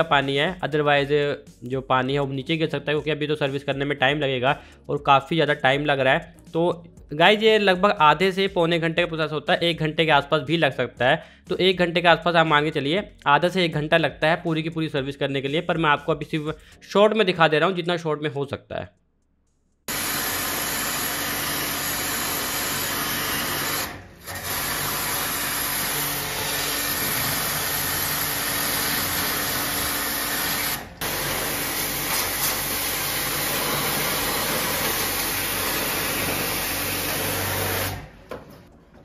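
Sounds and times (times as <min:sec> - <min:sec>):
pressure washer motor humming: 0:19.9 - 0:38.2
water jet hissing: 0:23.7 - 0:38.0.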